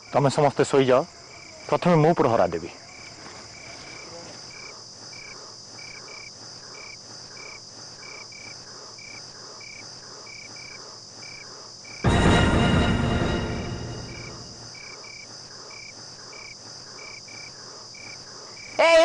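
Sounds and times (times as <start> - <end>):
crickets chirping: 0.0 - 19.0
steady high hiss: 3.9 - 19.0
sudden loud sound: 12.1 - 14.7.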